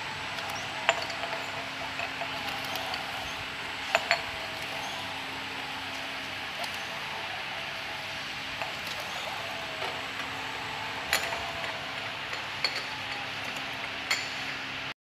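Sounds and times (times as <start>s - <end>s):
labeling machine humming and whirring: 0.0s - 15.0s
glass jars clinking: 0.6s - 5.1s, 8.6s - 14.5s.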